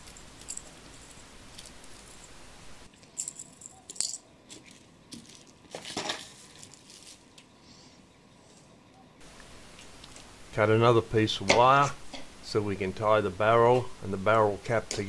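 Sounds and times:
metal nuts rattling: 0:00.0 - 0:04.3.

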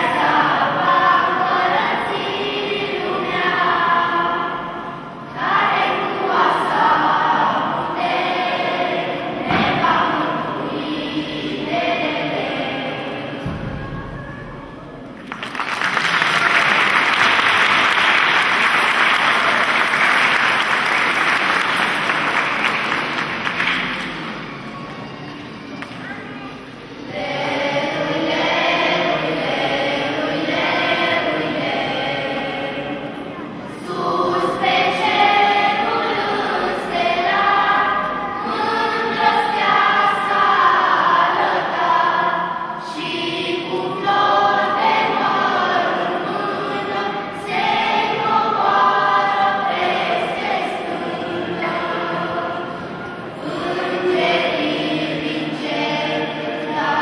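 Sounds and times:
children's choir singing a carol: 0:00.0 - 0:57.0.

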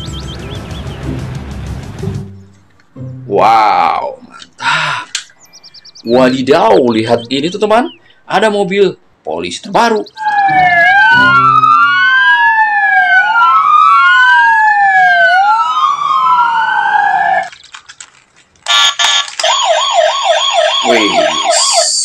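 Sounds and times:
police sirens wailing: 0:00.0 - 0:01.8, 0:05.5 - 0:08.0, 0:10.0 - 0:17.6, 0:18.7 - 0:22.0
toy siren warbling: 0:10.1 - 0:17.5, 0:18.7 - 0:22.0.

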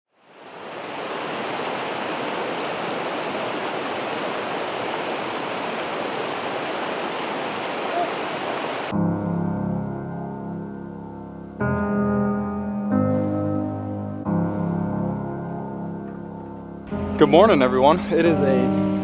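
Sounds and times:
water rushing over rocks: 0:00.1 - 0:08.9.

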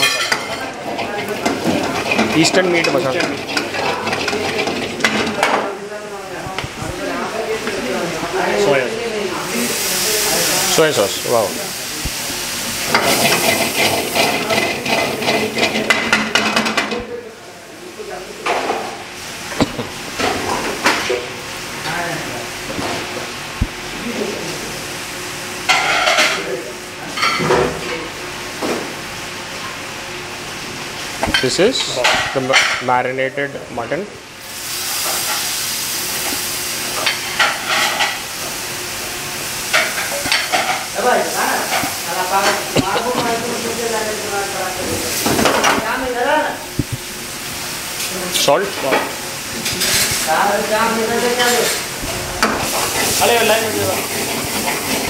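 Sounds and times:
ladle scraping a metal wok: 0:00.0 - 0:05.4, 0:12.8 - 0:16.1, 0:52.7 - 0:55.0
sizzling: 0:00.0 - 0:55.0.

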